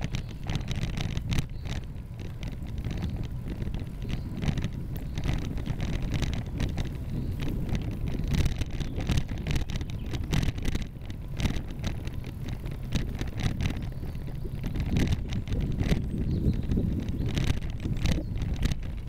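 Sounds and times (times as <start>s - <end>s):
bicycle clicks and rattles: 0.0s - 19.0s
wind rumbling on microphone: 0.0s - 19.0s.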